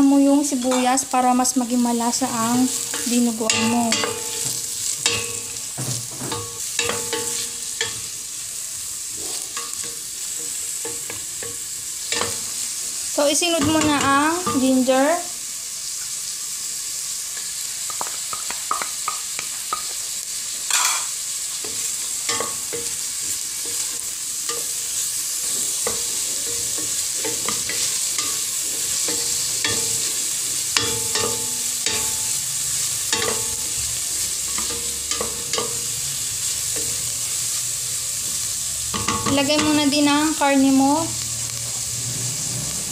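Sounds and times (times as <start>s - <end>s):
onions frying in hot oil: 0.0s - 42.9s
spatula scraping and tapping pot: 33.1s - 33.6s.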